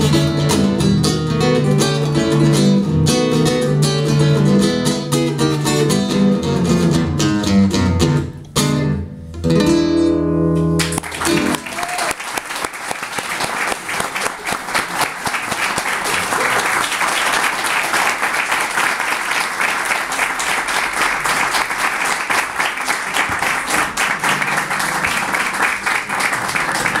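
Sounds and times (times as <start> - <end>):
audience applauding: 10.8 - 27.0.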